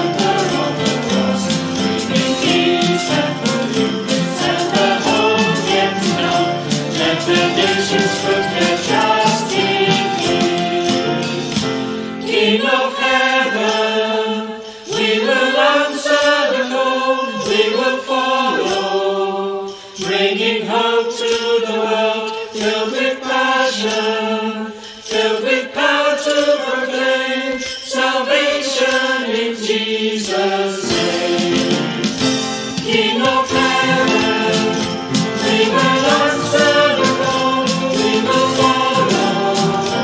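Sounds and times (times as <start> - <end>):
congregation singing a hymn: 0.0 - 40.0
musical accompaniment: 0.0 - 40.0.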